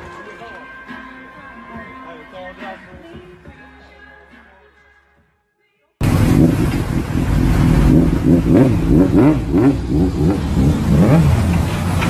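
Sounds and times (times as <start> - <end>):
motorcycle engine revving: 6.0 - 12.0.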